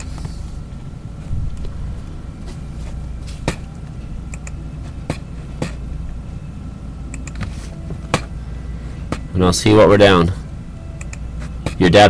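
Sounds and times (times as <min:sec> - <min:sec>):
steady low hum: 0:00.0 - 0:12.0
computer mouse clicks: 0:04.3 - 0:04.6, 0:07.1 - 0:07.5.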